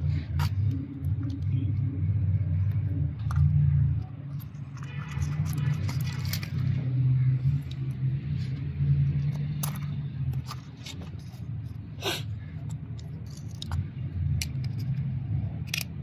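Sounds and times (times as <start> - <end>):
metal clamp rattle: 12.6 - 16.0
metal clicks: 12.6 - 16.0.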